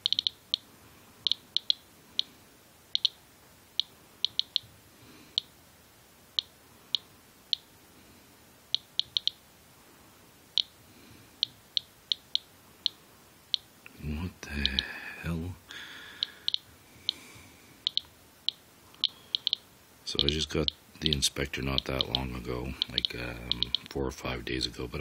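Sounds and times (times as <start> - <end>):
geiger counter clicking: 0.0 - 2.3, 2.9 - 3.2, 3.8 - 4.6, 8.7 - 9.4, 11.4 - 13.7, 14.6 - 14.9, 16.2 - 17.2, 17.8 - 23.9.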